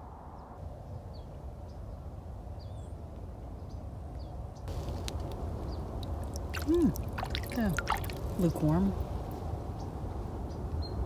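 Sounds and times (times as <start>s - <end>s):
low open-air rumble: 2.6s - 11.0s
small birds chirping: 3.6s - 11.0s
water splashing: 4.7s - 9.4s.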